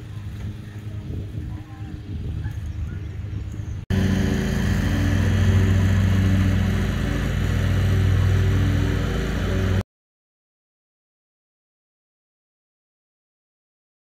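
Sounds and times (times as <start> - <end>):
ship horn drone: 3.9 - 9.8.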